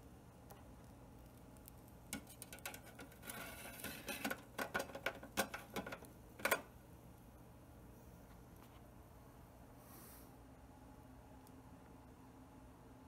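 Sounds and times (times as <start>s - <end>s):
metal tray scraping and clicking: 2.1s - 6.7s.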